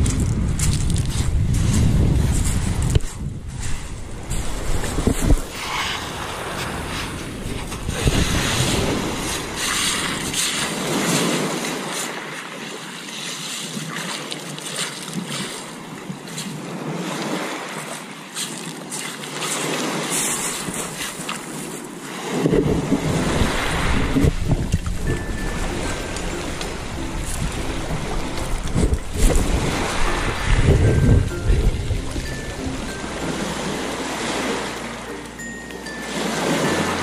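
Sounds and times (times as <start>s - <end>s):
deep rumble: 0.0s - 5.2s
wind buffeting microphone: 0.0s - 11.6s, 22.2s - 34.9s
rushing wind: 0.0s - 12.2s, 19.8s - 37.0s
surf: 0.0s - 37.0s.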